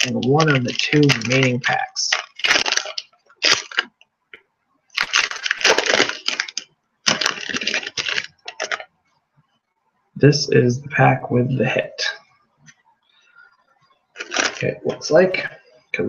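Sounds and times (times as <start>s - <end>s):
foil wrapper crinkling: 0.0s - 4.0s, 5.0s - 8.9s, 14.2s - 14.6s.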